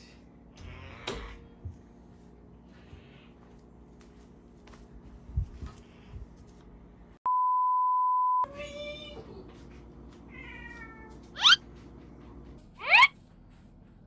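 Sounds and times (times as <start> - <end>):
cat meowing: 10.3 - 11.6.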